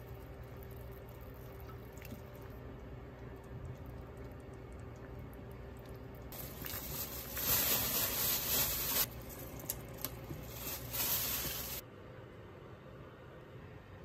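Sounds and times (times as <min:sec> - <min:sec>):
soup bubbling in a pot: 0:00.0 - 0:07.4.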